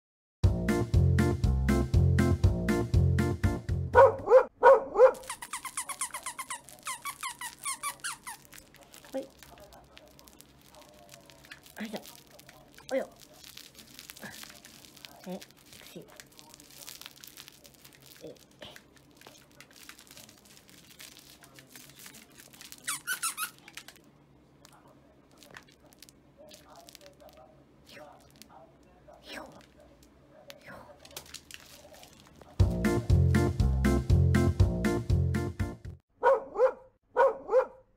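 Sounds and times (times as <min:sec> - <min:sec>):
plush toy squeaker: 0:05.2 - 0:08.6, 0:21.9 - 0:23.9.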